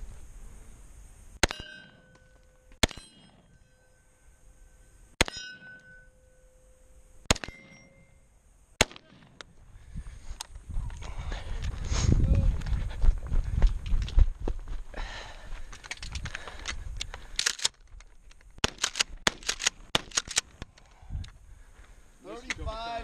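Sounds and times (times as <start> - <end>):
rifle shots: 1.4 - 2.0, 2.8 - 3.5, 7.3 - 8.0, 8.8 - 9.5, 18.6 - 20.5
steel target ringing: 1.4 - 9.1.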